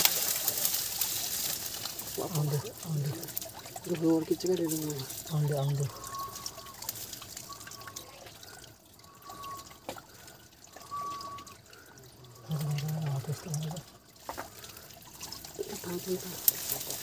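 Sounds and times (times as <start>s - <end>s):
water trickling: 0.0s - 17.0s
low voice: 2.2s - 3.3s, 12.2s - 13.8s
short thin chirps: 10.8s - 11.6s.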